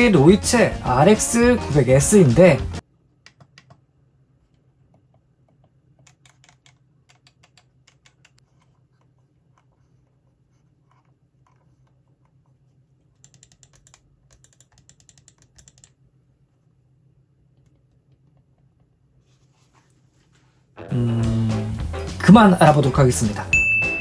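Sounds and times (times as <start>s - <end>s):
soft muted mouse clicks: 4.9s - 9.7s, 13.2s - 16.0s
sharp loud mouse clicks: 13.2s - 16.0s.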